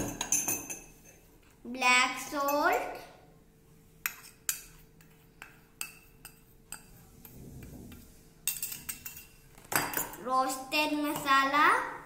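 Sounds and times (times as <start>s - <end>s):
metal spoon clinking on steel bowl: 0.0s - 1.2s, 4.0s - 6.9s, 8.4s - 10.2s.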